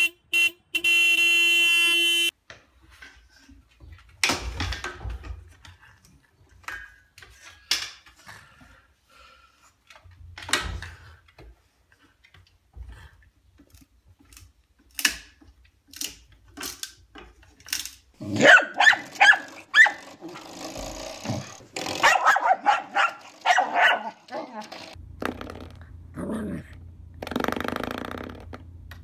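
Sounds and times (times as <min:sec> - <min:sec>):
dog barking: 0:18.3 - 0:20.0, 0:22.0 - 0:24.5.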